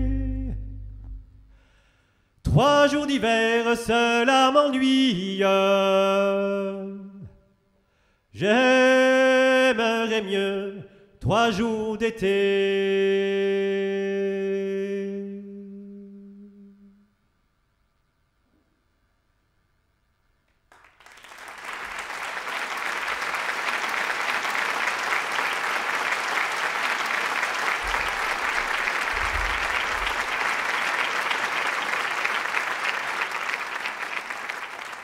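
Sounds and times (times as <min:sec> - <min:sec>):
low thumps: 0:00.0 - 0:01.6
audience applause: 0:20.7 - 0:35.0.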